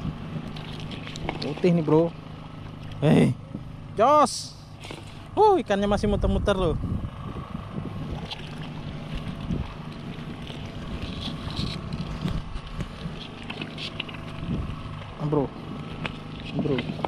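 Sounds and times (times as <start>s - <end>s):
boat engine running: 0.0s - 17.0s
wind on microphone: 6.0s - 13.4s, 14.3s - 14.8s.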